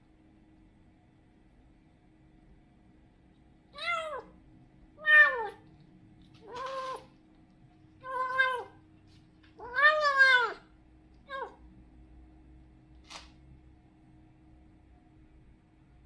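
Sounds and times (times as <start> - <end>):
kitten meowing: 3.8 - 4.3, 5.0 - 5.6, 6.4 - 7.1, 8.0 - 8.8, 9.6 - 10.6, 11.3 - 11.6.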